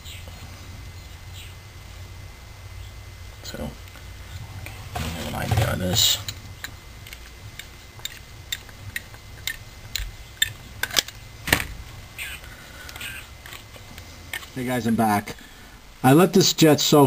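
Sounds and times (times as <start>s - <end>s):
screwdriver clicking on metal: 7.1s - 11.1s.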